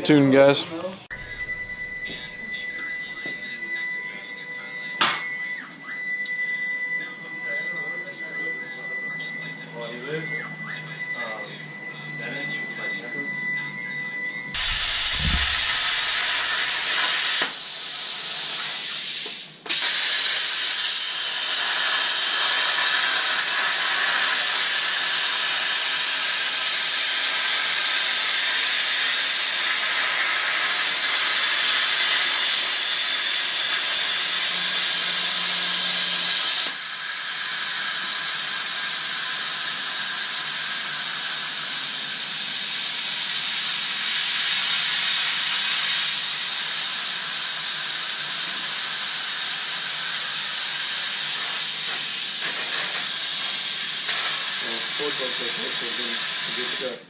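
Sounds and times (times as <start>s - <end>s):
plasma torch hissing: 14.6s - 57.0s.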